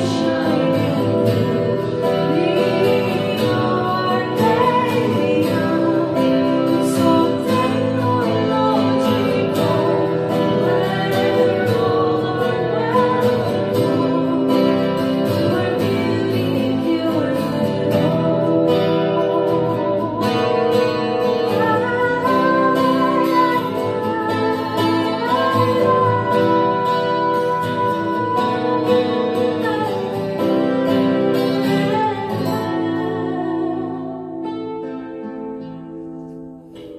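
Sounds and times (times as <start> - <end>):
woman singing with vibrato: 0.0 - 35.4
acoustic guitar: 0.0 - 36.9.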